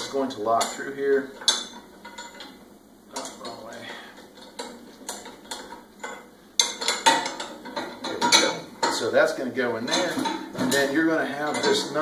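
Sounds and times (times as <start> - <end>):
light metal taps and clinks: 4.4 - 9.1.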